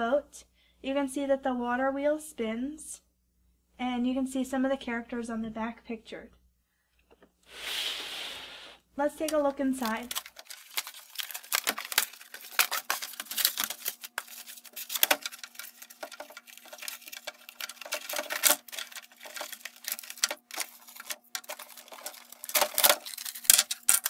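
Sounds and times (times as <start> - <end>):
faint steady hum: 0.0 - 24.0
cardboard and plastic rustling: 9.2 - 24.0.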